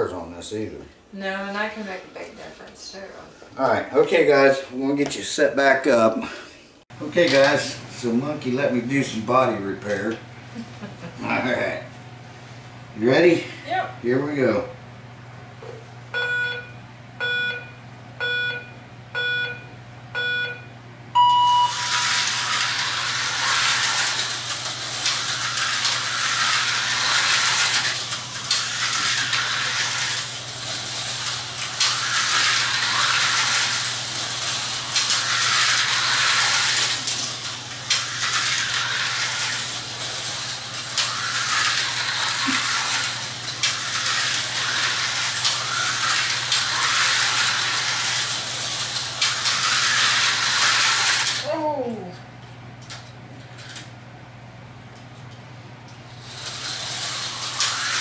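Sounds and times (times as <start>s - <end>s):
countdown beeps: 16.2s - 21.8s
high go tone: 21.2s - 22.0s
slot car motors whirring: 21.2s - 51.6s, 55.9s - 58.0s.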